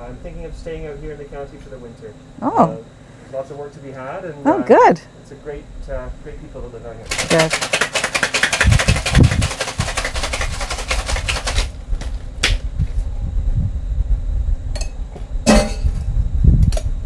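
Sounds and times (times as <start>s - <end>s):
ice rattling in cocktail shaker: 7.1s - 11.7s.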